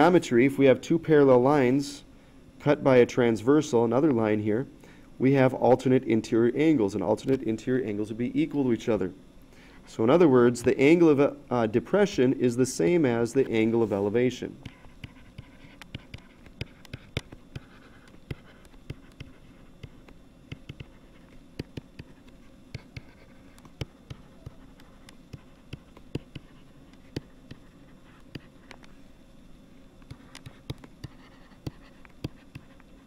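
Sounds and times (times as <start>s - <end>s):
faint steady hum: 0.0s - 33.0s
stylus tapping on tablet: 14.6s - 21.0s, 21.6s - 28.5s, 30.1s - 32.7s.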